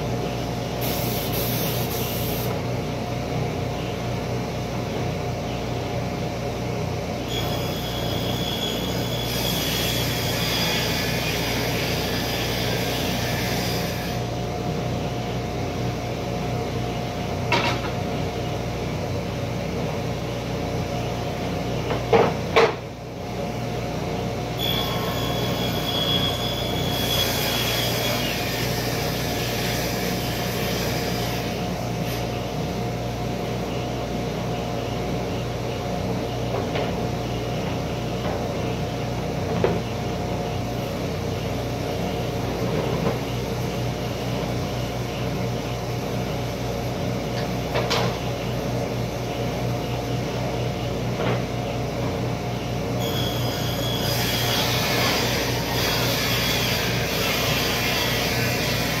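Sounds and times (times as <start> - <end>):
workshop machinery humming: 0.0 - 59.0
hissing scraping with whistle: 7.3 - 14.2, 24.6 - 32.2, 53.0 - 57.7.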